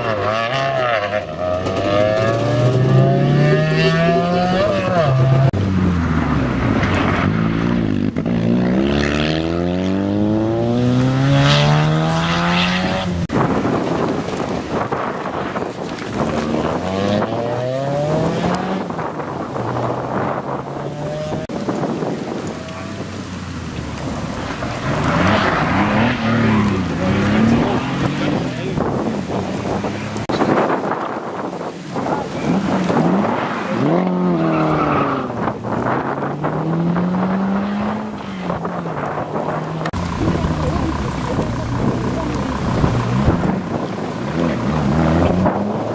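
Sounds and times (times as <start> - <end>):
distant rally car engine: 0.0 - 13.3, 16.2 - 21.6, 22.4 - 30.6, 32.0 - 45.9
rally car engine accelerating: 0.0 - 13.3, 24.0 - 30.3, 32.4 - 45.9.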